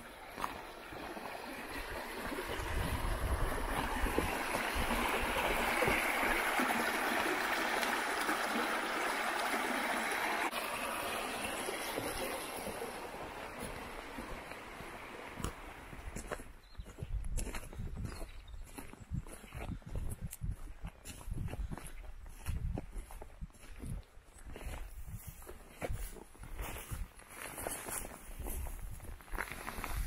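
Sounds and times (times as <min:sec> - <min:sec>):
stream rushing: 0:00.0 - 0:16.3.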